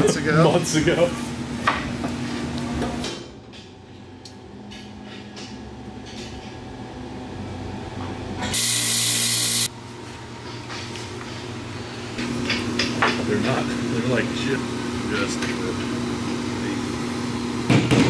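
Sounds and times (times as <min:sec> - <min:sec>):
power tool burst: 0:08.6 - 0:09.7.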